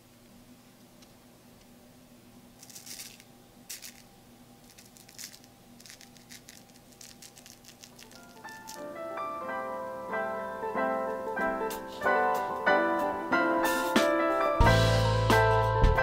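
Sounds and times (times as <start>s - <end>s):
powdered sugar sifting rasps: 2.6s - 9.1s.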